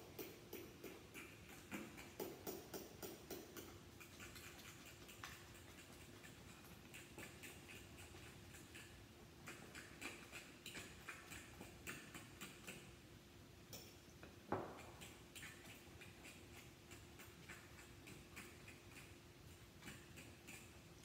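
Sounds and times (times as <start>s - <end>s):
fork clicking against glass bowl: 0.0s - 12.9s.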